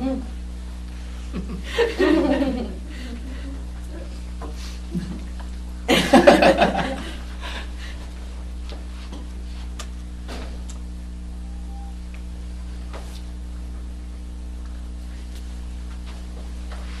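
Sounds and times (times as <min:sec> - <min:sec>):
low electrical hum: 0:00.0 - 0:17.0
man laughing: 0:01.3 - 0:04.2, 0:05.9 - 0:07.8.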